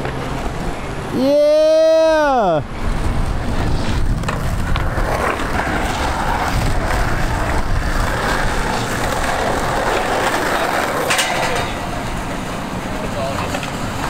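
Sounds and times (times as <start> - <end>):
skateboard wheels rolling on concrete: 0.0 - 14.0
skateboard sliding on rail: 2.7 - 14.0
skateboard clacking on metal rail: 6.8 - 14.0.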